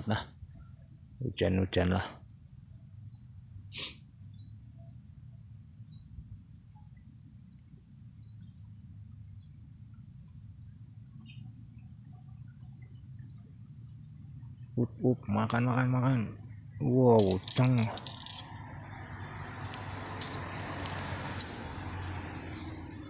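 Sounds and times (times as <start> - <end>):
faint chirps: 4.2 - 5.0, 9.8 - 23.0
water running through ditch: 17.1 - 22.4
sharp click: 17.2 - 18.5.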